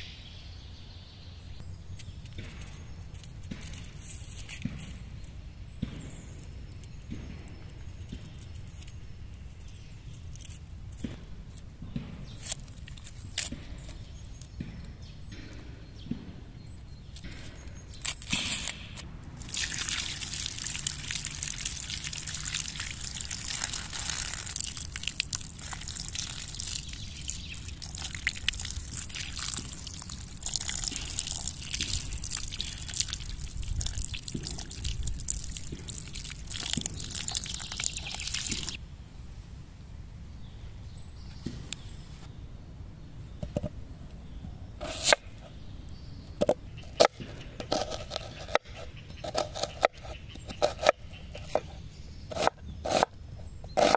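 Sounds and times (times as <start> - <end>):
water splashing and trickling: 19.3 - 38.8.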